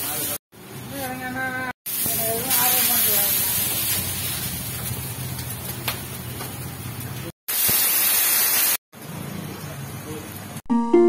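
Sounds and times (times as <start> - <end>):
kitchen hum: 0.0 - 10.6
water hissing on hot griddle: 1.9 - 8.8.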